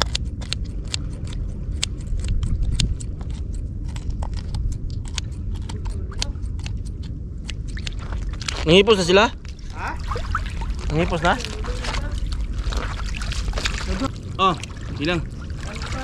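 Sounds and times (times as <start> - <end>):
scissors snipping fish: 0.0 - 8.7
steady low rumble: 0.0 - 16.0.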